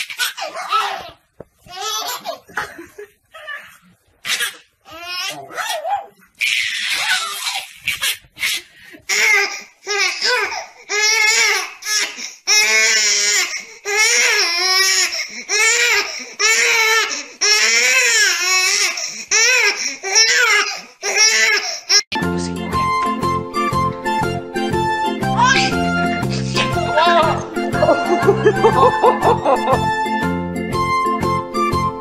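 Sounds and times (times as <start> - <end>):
baby crying: 3.4 - 22.1, 25.3 - 27.4.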